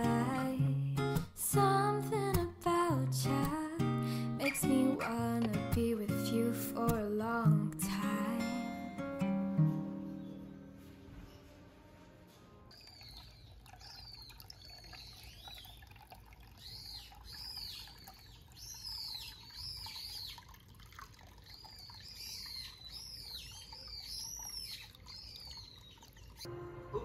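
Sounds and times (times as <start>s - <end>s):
small birds chirping: 12.7s - 20.6s, 21.4s - 26.5s
water running from a spout: 12.7s - 26.5s.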